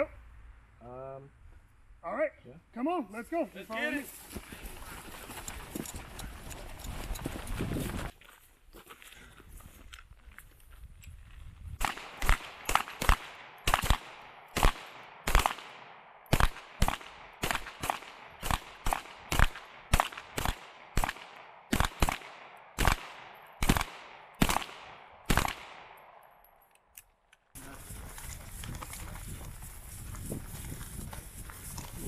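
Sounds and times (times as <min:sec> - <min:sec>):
pistol shots with echo: 0:11.8 - 0:26.3.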